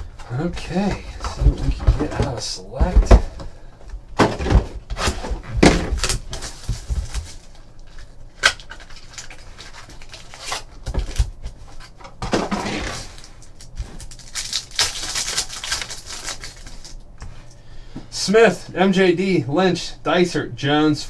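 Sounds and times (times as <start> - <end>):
card packs rustling and scraping: 4.2 - 17.0
pack wrapper tearing: 5.9 - 11.3, 12.8 - 17.1.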